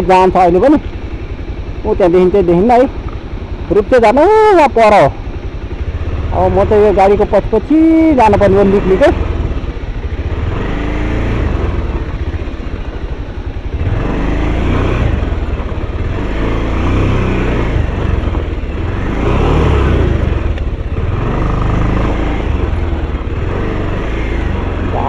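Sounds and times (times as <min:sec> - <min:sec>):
motorcycle engine revving: 0:00.0 - 0:25.0.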